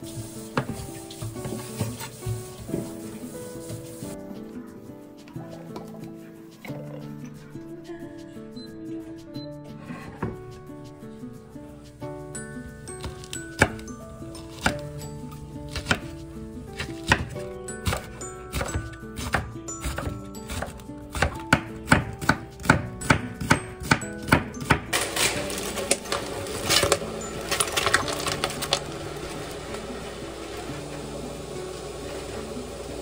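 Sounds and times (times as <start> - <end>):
background music: 0.0 - 33.0
knife chopping on wooden board: 15.7 - 16.1, 16.8 - 24.9.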